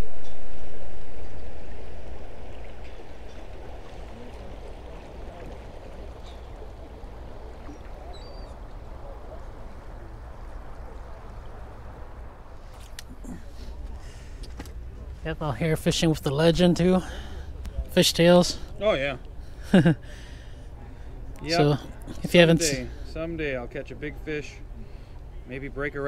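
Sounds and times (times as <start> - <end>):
fast-flowing water rushing: 0.5 - 14.4.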